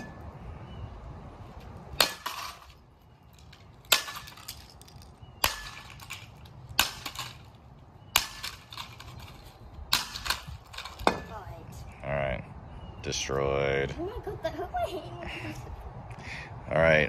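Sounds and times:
bat smashing plastic on concrete: 3.8s - 7.5s.

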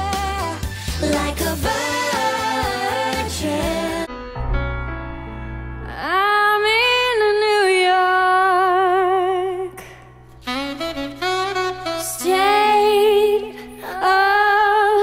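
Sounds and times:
saxophone ballad: 10.4s - 15.0s.

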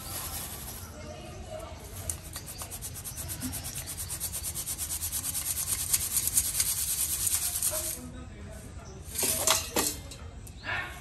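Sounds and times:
sugar rasping through sieve mesh: 0.0s - 8.0s.

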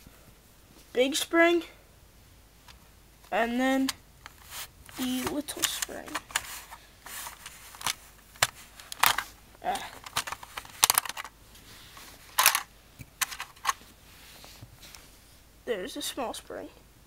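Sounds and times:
plastic parts clicking and knocking: 3.8s - 11.3s, 12.3s - 13.8s.

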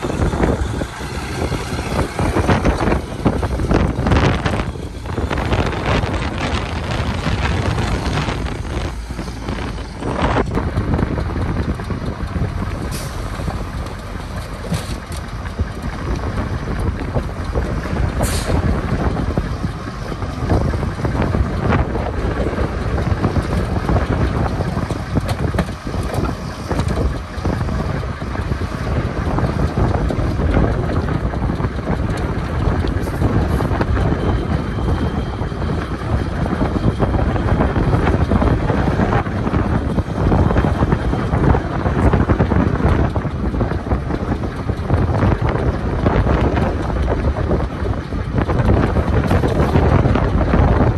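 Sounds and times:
bulldozer: 0.0s - 50.9s
dump truck diesel engine: 0.0s - 50.9s
wind buffeting microphone: 0.0s - 50.9s.

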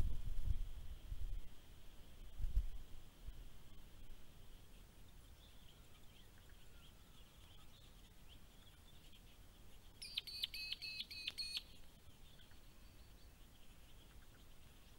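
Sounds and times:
faint distant birdsong: 0.0s - 14.9s
bird call high sharp notes: 10.0s - 11.8s.

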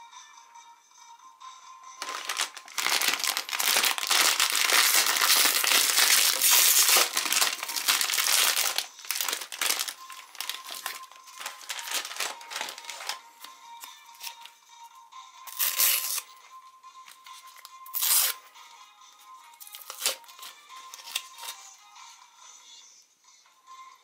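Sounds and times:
plastic wrapper crinkling: 2.0s - 14.5s, 15.5s - 16.3s, 17.5s - 18.4s, 19.6s - 21.6s.

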